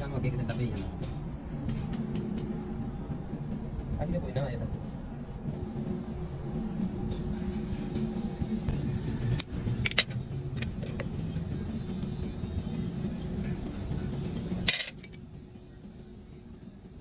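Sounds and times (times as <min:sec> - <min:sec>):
steady low hum: 0:00.0 - 0:17.0
metal clinks and knocks: 0:09.3 - 0:11.1.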